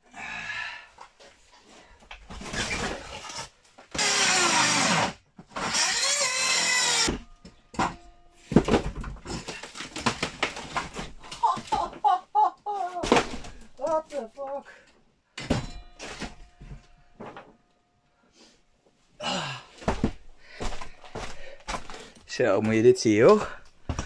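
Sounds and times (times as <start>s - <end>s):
power saw cutting wood: 4.0s - 7.2s.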